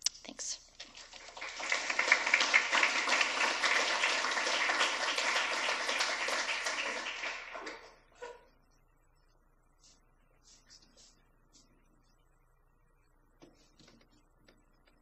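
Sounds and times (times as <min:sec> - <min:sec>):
small audience applauding: 0:00.8 - 0:08.1.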